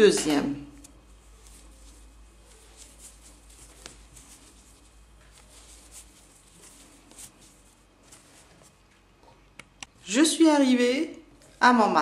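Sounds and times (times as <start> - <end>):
hands handling fabric: 0.0 - 10.0
crochet hook scratching yarn: 0.2 - 8.8.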